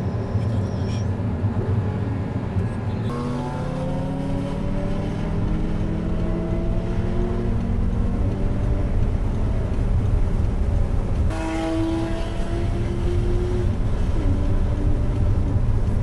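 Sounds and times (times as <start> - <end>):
road and wind rumble: 0.0 - 16.0
car engine accelerating: 3.0 - 16.0.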